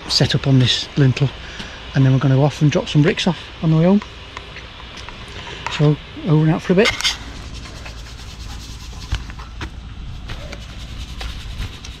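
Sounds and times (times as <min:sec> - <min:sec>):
scraping and rubbing: 0:06.8 - 0:12.0.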